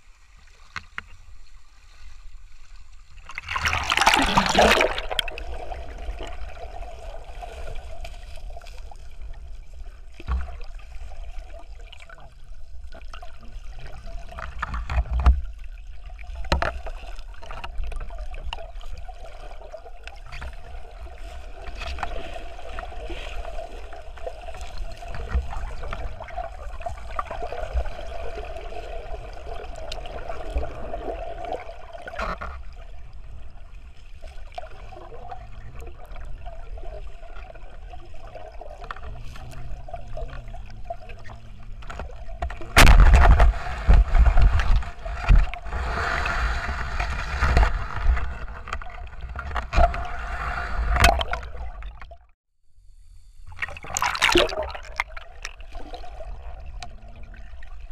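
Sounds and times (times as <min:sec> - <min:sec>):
water sloshing and bubbling: 0:00.0 - 0:52.6, 0:53.3 - 0:57.9
muffled underwater wash: 0:00.0 - 0:57.9
knocks underwater: 0:41.8 - 0:52.3.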